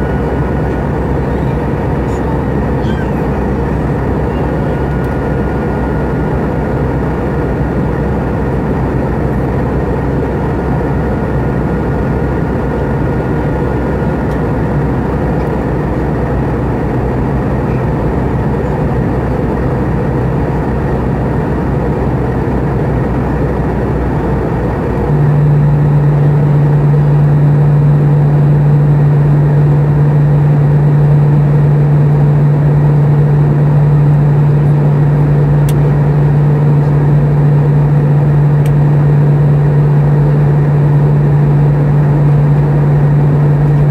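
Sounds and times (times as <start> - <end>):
jet engine and airflow drone: 0.0 - 43.9
strong low hum: 0.0 - 43.9.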